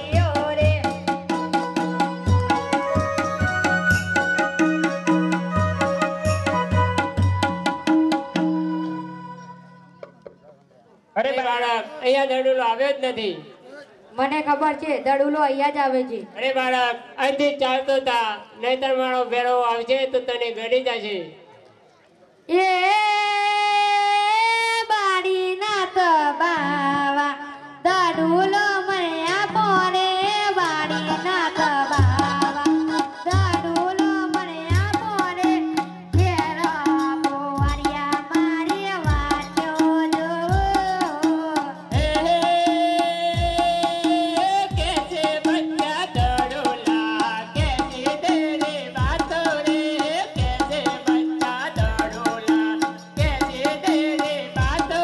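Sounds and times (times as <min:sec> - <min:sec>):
drums slow beat: 0:32.0 - 0:55.0.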